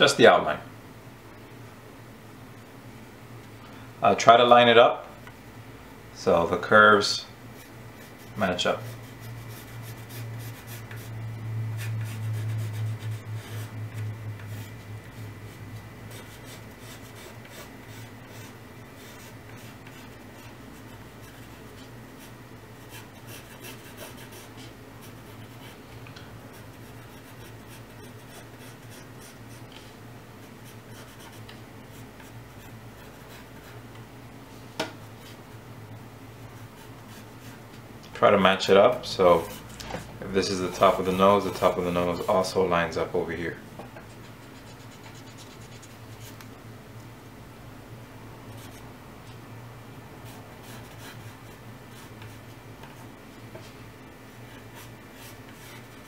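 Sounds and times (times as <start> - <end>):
pencil scratching on paper: 7.6 - 11.1, 11.8 - 13.8, 15.5 - 25.8, 26.5 - 29.7, 30.4 - 33.8, 44.0 - 46.4, 50.3 - 52.5
low hum: 7.6 - 29.3.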